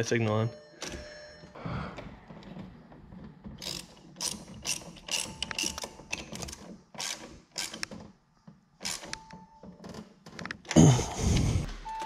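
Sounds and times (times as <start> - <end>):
ratchet wrench clicking: 3.6 - 6.2, 7.0 - 7.9.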